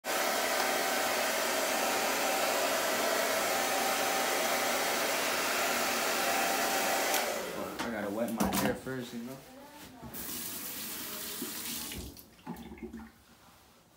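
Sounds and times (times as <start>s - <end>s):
hair dryer blowing: 0.0s - 8.1s.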